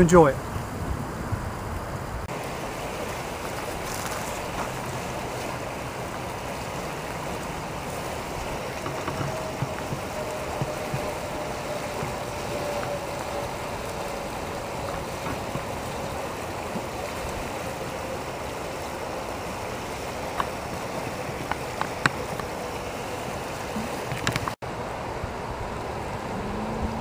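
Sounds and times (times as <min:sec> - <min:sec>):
river water rushing: 0:00.0 - 0:27.0.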